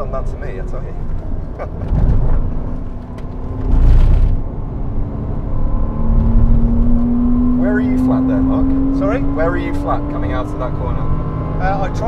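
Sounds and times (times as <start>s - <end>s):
car engine accelerating: 0.0s - 12.0s
road and wind noise: 0.0s - 12.0s
loud rumbling rush: 1.8s - 7.4s.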